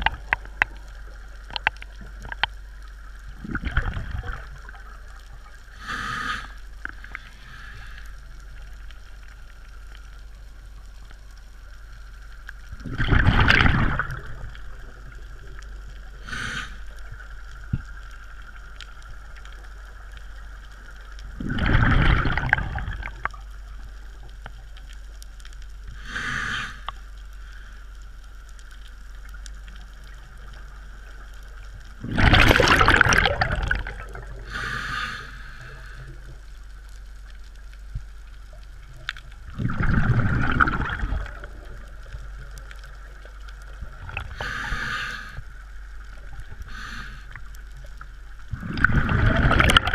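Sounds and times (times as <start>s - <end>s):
bubbling exhalations underwater: 3.4s - 4.8s, 12.8s - 15.0s, 21.3s - 23.3s, 32.0s - 34.6s, 39.5s - 42.2s, 43.8s - 44.8s, 48.5s - 49.9s
regulator inhalation hiss: 5.7s - 6.6s, 16.2s - 17.0s, 26.0s - 27.8s, 34.4s - 36.2s, 44.3s - 45.5s, 46.6s - 47.5s.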